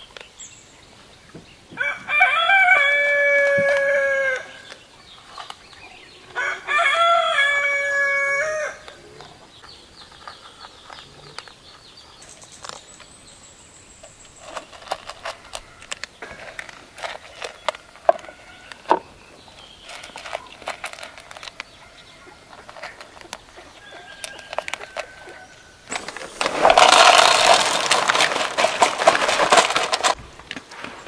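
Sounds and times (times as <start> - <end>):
light clicks of bowls and kibble: 10.0 - 13.3, 14.0 - 18.9, 19.8 - 25.4
kibble pouring into plastic bowl: 25.9 - 30.2.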